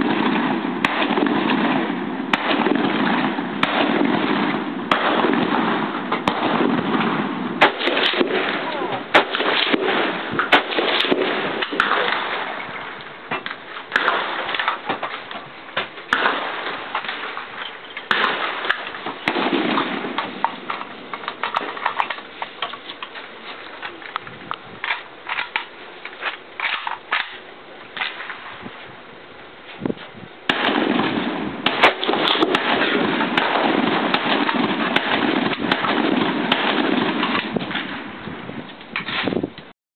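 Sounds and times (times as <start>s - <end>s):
rifle shots: 0.0s - 23.1s, 30.5s - 38.2s.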